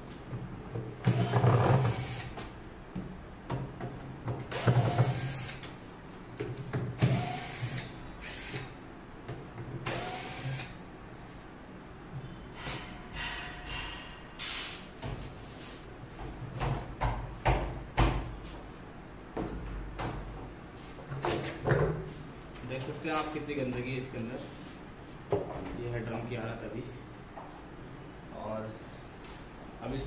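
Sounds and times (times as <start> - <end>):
cordless drill running: 1.0 - 2.3, 4.5 - 5.6, 7.0 - 8.8, 9.9 - 10.8.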